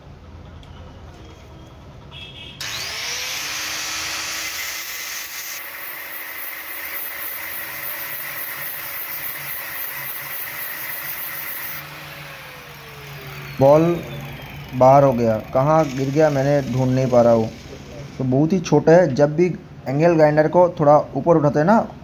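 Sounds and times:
angle grinder whining: 2.6 - 18.6
steel ball grinding against disc: 5.4 - 11.8.

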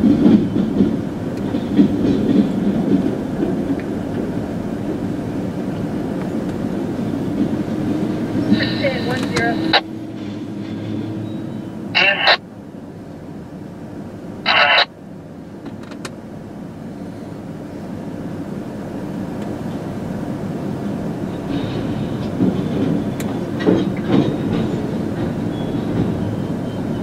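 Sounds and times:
wheels clanking over crossing: 0.0 - 12.0, 21.2 - 27.0
train wheels rumbling: 0.0 - 27.0.

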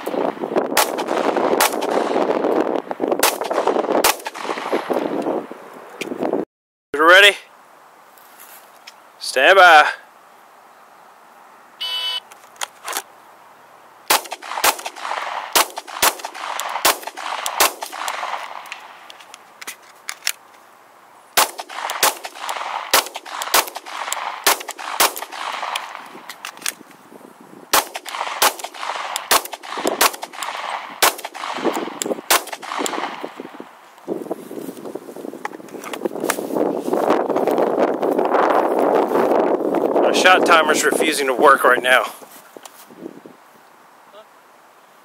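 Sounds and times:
pistol shots: 0.8 - 2.4, 3.2 - 4.9, 14.1 - 19.0, 21.4 - 26.1, 27.7 - 33.4
shot timer beep: 11.8 - 12.2.

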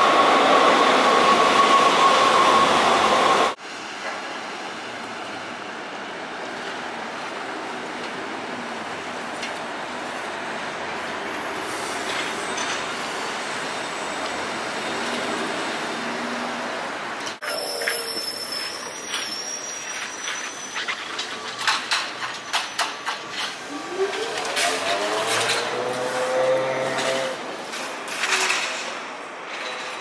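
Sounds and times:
light-rail car rumbling: 0.0 - 30.0
street traffic noise: 3.5 - 29.9
train wheels squealing: 17.4 - 25.1
bus moving: 20.1 - 28.1.

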